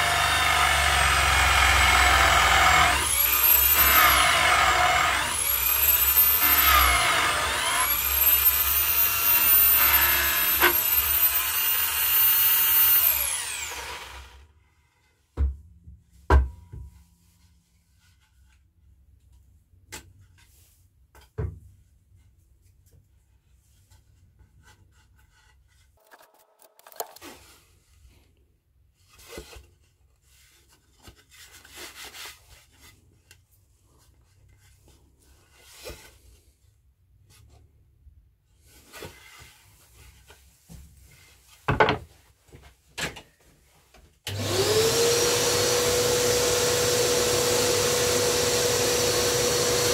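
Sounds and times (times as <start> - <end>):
shop vacuum motor whine: 0.0 - 14.4, 44.3 - 49.9
wooden board knocking and scraping: 41.7 - 42.1.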